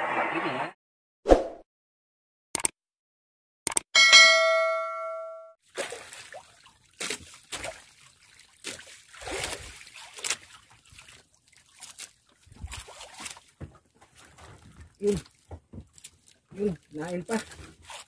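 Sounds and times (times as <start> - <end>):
bell-like notification chime: 4.0 - 5.6
water splashing against wooden boat: 5.6 - 18.0.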